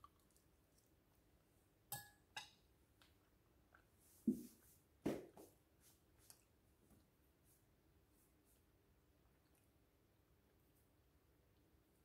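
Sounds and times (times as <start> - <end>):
metal spoon clinking ceramic bowl: 1.9 - 2.6.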